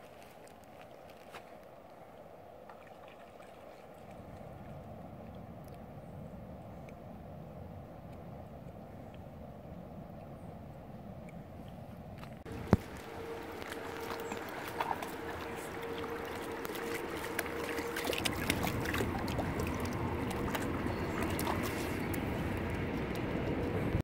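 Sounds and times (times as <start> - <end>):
dog wading in water: 0.0 - 5.8, 12.2 - 24.0
river water splashing: 0.0 - 6.0, 12.2 - 24.0
faint steady hum: 0.8 - 24.0.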